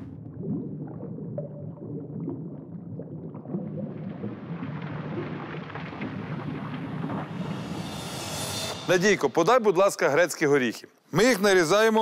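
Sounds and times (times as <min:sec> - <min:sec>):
water pouring onto sieve: 0:03.6 - 0:08.5.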